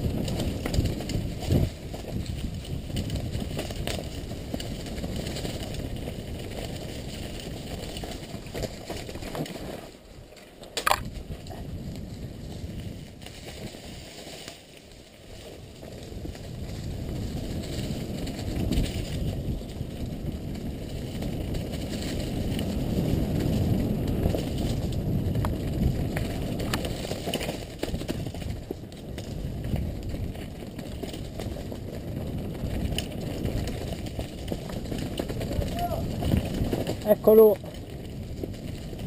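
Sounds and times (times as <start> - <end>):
bike tyres rolling on dirt trail: 0.0 - 39.0
wind rumbling on microphone: 0.0 - 39.0
clicks and rattles: 10.4 - 11.2.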